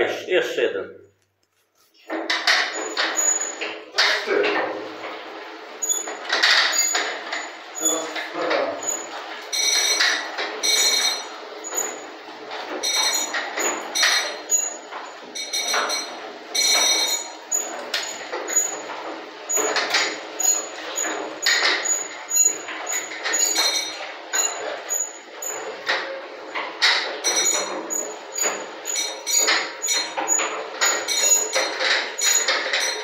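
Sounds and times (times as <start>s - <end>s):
metallic clanks: 2.1s - 33.0s
steel platform grinding scrape: 2.2s - 33.0s.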